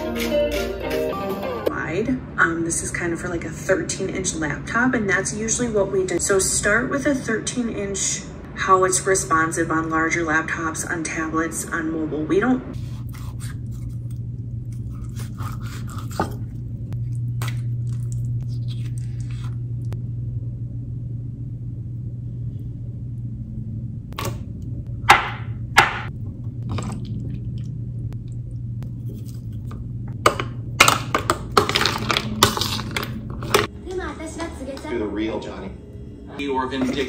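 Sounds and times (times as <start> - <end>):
steady low hum: 1.7 - 37.0
knife scraping on cutting board: 14.7 - 16.4
ice cubes cracking and clattering: 30.8 - 33.7.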